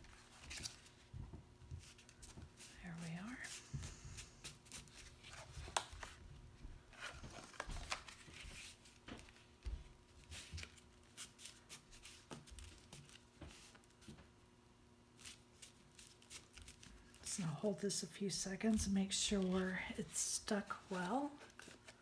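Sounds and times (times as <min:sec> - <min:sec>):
cardstock rustling and scraping: 0:20.6 - 0:22.0.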